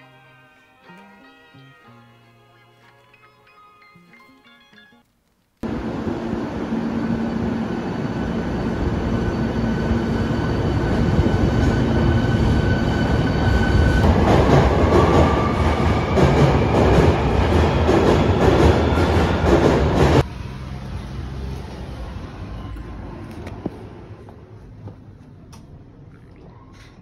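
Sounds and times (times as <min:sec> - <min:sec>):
subway train hum: 0:05.6 - 0:26.0
rail clatter: 0:13.8 - 0:20.3.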